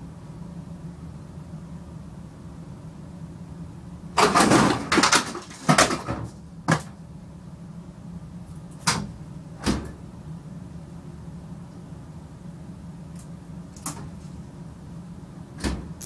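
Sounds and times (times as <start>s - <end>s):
dryer door banging open: 4.2s - 6.9s, 8.8s - 10.0s, 15.6s - 15.9s.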